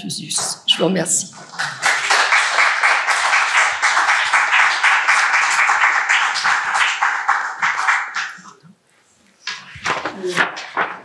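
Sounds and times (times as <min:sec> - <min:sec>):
small audience applauding: 0:01.3 - 0:08.6.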